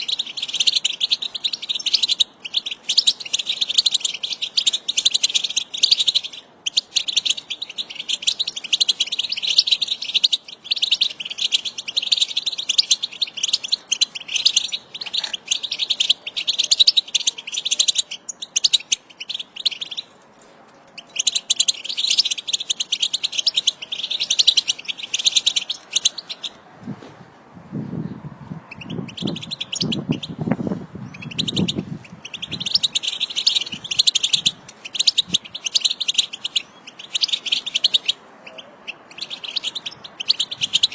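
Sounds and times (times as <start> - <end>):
finches twittering: 21.0 - 26.6, 28.7 - 30.4, 31.1 - 40.9.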